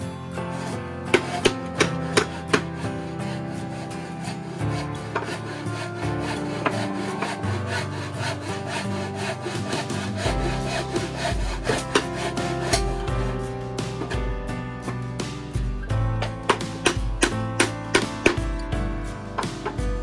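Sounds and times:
background music: 0:00.0 - 0:20.0
hammer tapping nails into wood: 0:16.2 - 0:18.6.

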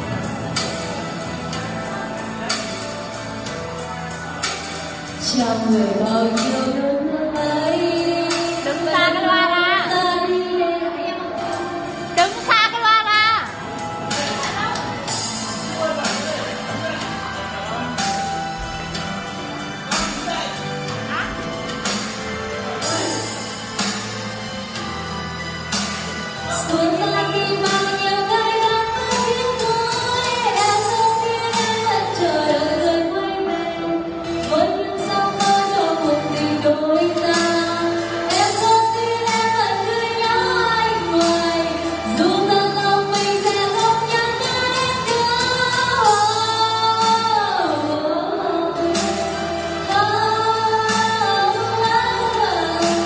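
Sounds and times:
instrumental accompaniment: 0:00.0 - 0:53.0
karaoke backing track: 0:00.0 - 0:53.0
woman singing into a microphone: 0:05.0 - 0:13.6, 0:26.4 - 0:53.0.

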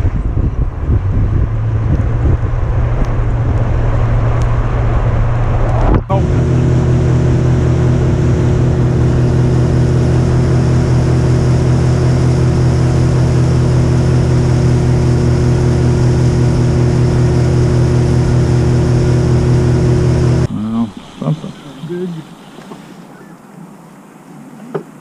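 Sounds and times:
outboard motor running steadily: 0:06.1 - 0:23.3.

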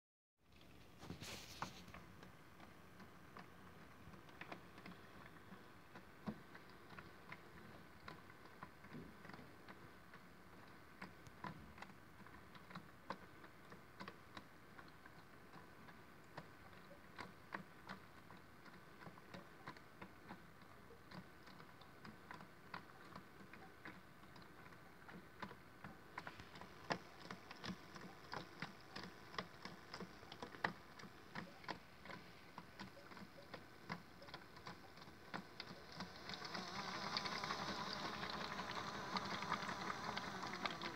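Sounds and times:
small irregular clicks: 0:00.5 - 0:40.9
water in turning drum: 0:00.6 - 0:40.9
toy washing machine running: 0:26.2 - 0:40.9.

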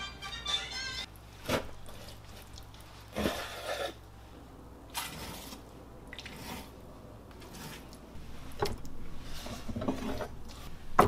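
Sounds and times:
background music: 0:00.0 - 0:01.1.

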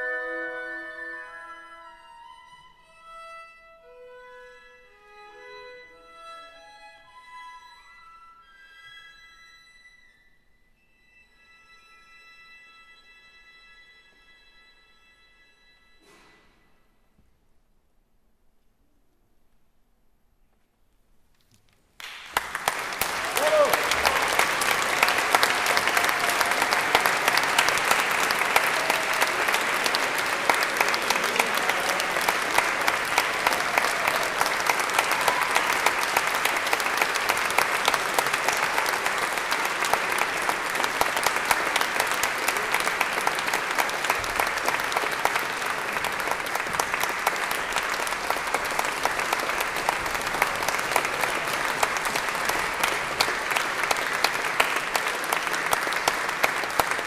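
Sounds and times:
audience applauding: 0:22.0 - 0:57.0.

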